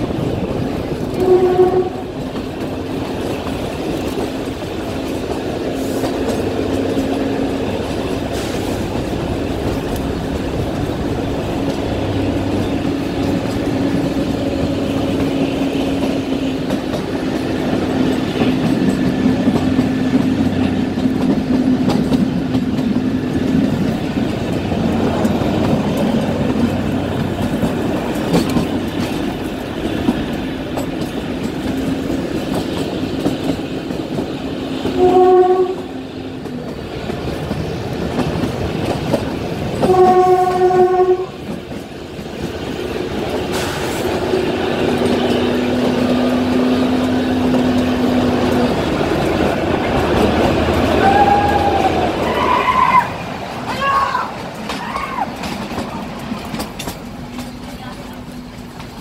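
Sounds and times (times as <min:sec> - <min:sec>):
train rail and carriage noise: 0:00.0 - 0:59.0
train horn blasts: 0:01.1 - 0:02.3, 0:34.8 - 0:36.1, 0:39.8 - 0:41.5.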